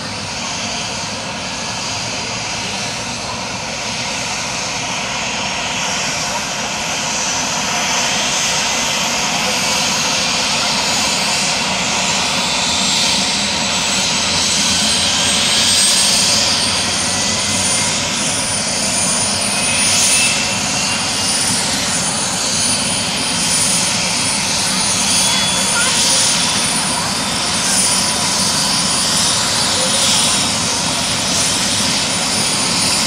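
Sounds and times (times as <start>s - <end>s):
helicopter engine whine: 0.0s - 33.0s.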